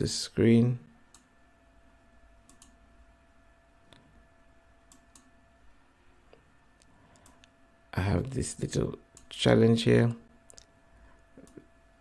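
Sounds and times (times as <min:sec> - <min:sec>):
computer mouse clicks: 0:01.1 - 0:01.3, 0:02.4 - 0:02.8, 0:04.8 - 0:05.3.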